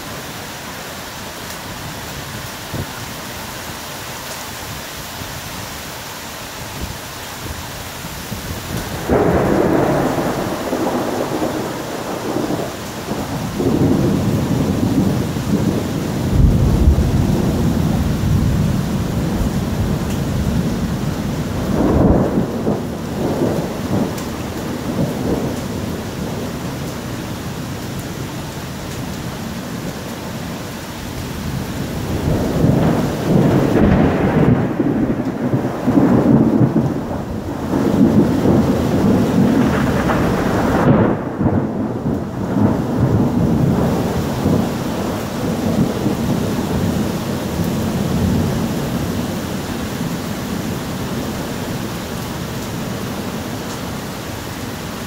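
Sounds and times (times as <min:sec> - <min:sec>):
heavy rain: 0:00.0 - 0:55.0
rolling thunder: 0:08.4 - 0:27.1, 0:31.4 - 0:49.4.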